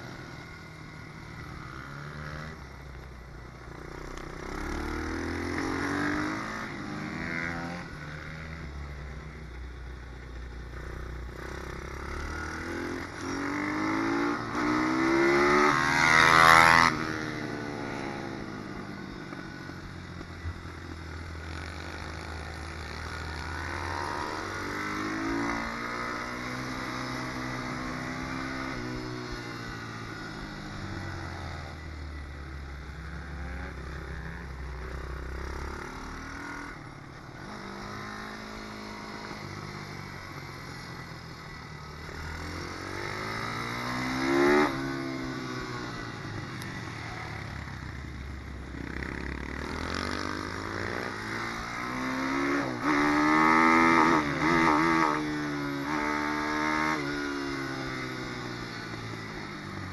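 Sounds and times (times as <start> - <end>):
motorbike engine revving: 42.3 - 46.0.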